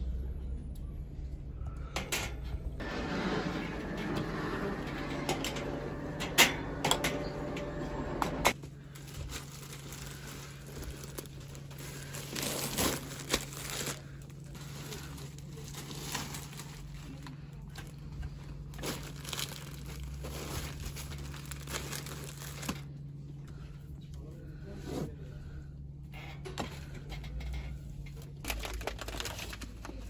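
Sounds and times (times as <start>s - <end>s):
steady low hum: 0.0s - 30.0s
plastic film crinkling: 8.5s - 18.0s, 18.7s - 22.9s, 28.2s - 30.0s.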